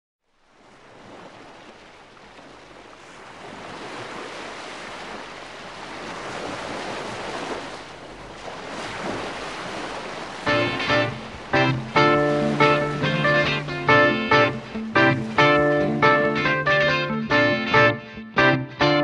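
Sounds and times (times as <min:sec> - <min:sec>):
sea surf washing in: 0:03.2 - 0:19.0
guitar strums: 0:10.5 - 0:19.0.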